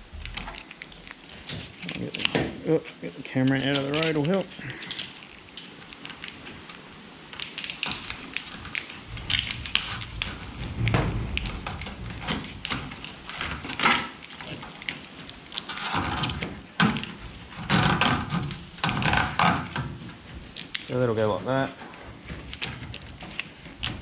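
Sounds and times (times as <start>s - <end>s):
plastic conduit rustling and scraping: 0.0s - 24.0s
clicks and knocks: 9.1s - 15.0s.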